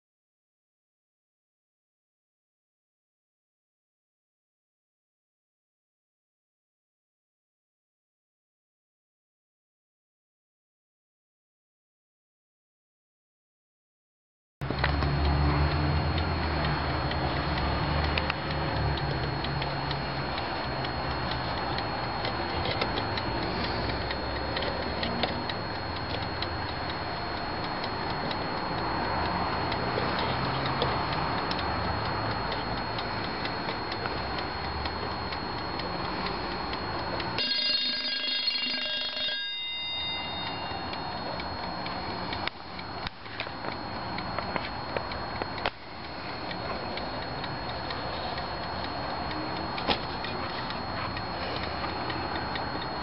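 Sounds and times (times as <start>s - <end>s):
clock ticking: 14.6s - 53.0s
alarm clock bell ringing: 15.8s - 53.0s.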